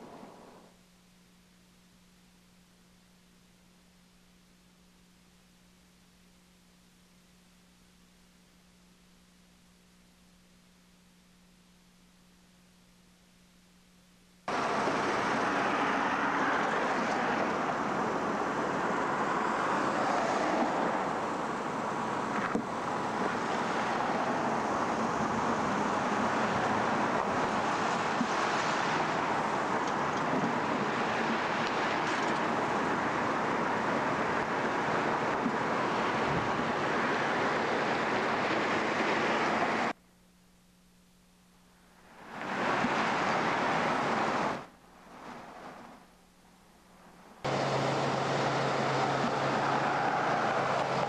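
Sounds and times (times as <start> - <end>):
rushing outdoor noise: 0.0 - 0.8, 14.5 - 40.0, 41.8 - 51.0.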